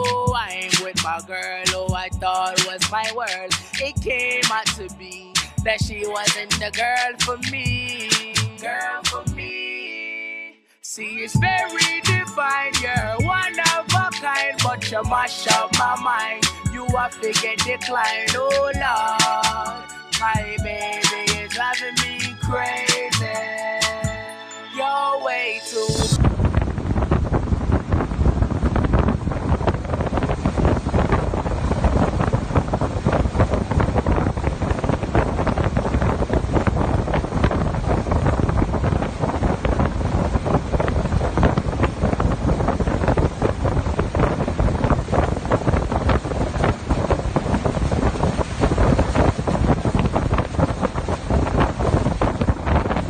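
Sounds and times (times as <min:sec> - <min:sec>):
wind buffeting microphone: 0:00.0 - 0:04.4, 0:26.0 - 0:53.0.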